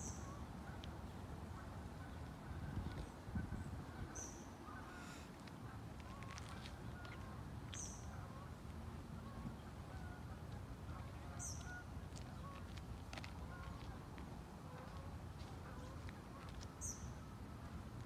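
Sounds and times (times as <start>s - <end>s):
geese honking: 9.2s - 17.4s.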